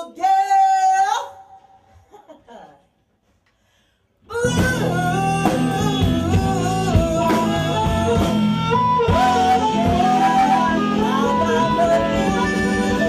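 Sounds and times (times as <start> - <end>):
blues band playing: 4.3 - 13.0
woman singing: 4.3 - 13.0.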